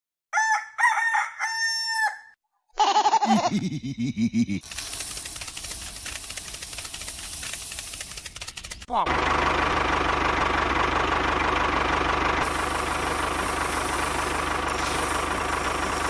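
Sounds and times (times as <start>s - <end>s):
rooster crowing: 0.3s - 2.4s.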